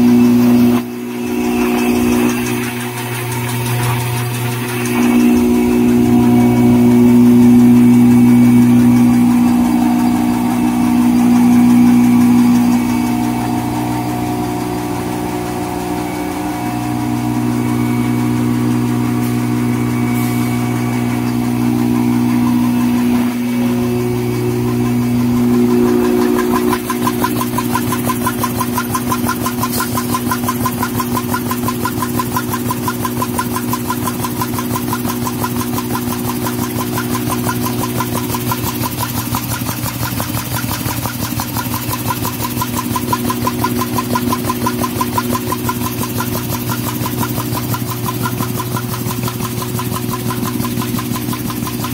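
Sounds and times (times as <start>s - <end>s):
blower humming: 0.0s - 51.9s
paper machine mechanical clatter: 0.1s - 6.9s, 23.7s - 51.9s.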